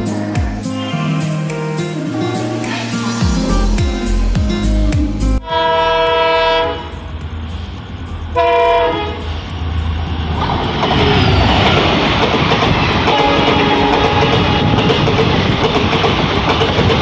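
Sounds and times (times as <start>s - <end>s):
train horn blasts: 5.4s - 7.1s, 8.4s - 9.3s, 13.1s - 15.1s
moving train rumble and clatter: 5.4s - 17.0s.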